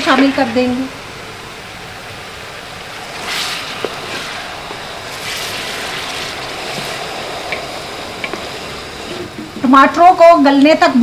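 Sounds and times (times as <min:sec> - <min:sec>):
oil sizzling in a pot: 0:00.0 - 0:11.0
wooden spoon stirring: 0:03.0 - 0:09.8.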